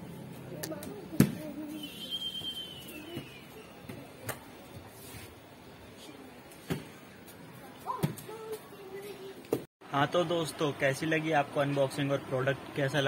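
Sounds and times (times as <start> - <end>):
faint whistle: 1.8 - 3.7.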